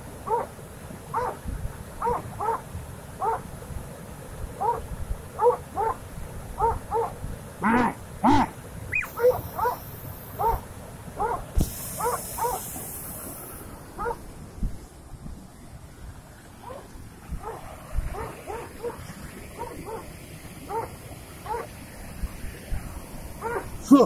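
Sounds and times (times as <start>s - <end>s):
animal yelping: 6.6s - 9.8s.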